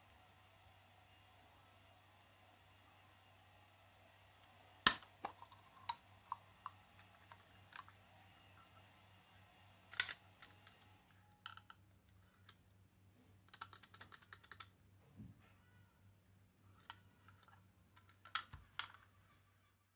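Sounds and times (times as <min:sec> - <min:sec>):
plastic housing clicks: 0:16.8 - 0:19.0.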